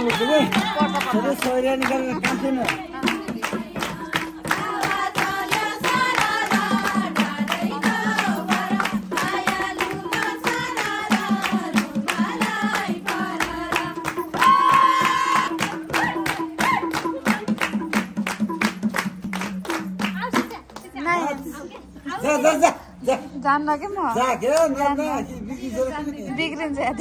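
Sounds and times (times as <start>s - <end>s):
group singing folk song: 0.0s - 18.5s
hand drum beat: 0.0s - 21.2s
hand clapping: 0.0s - 21.9s.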